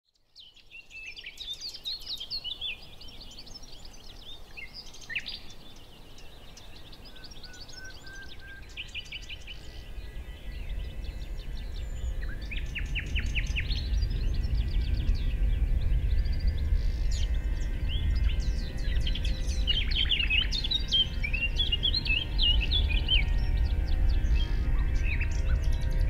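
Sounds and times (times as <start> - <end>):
small birds chirping and trilling: 0.1 - 26.0
low rumble: 8.6 - 26.0.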